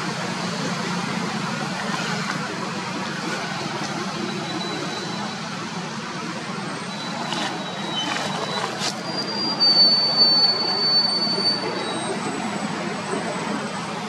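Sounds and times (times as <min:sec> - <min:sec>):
high whistle-like tone: 0:06.9 - 0:12.2.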